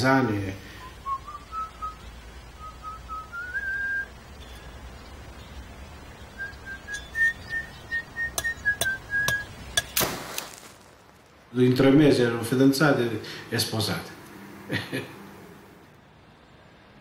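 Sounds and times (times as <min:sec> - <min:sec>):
person whistling a slow tune: 0:00.8 - 0:02.0, 0:02.6 - 0:04.1, 0:06.4 - 0:09.5.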